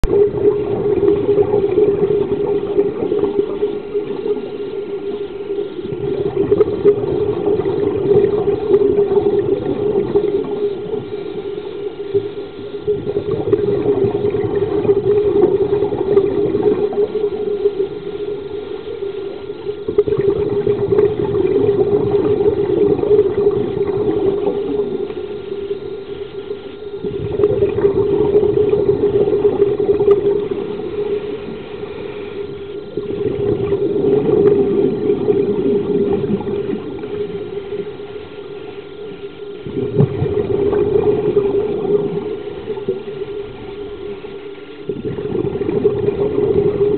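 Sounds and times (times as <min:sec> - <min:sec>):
muffled underwater hum: 0:00.0 - 0:46.9
rush of exhaled bubbles: 0:00.0 - 0:46.9.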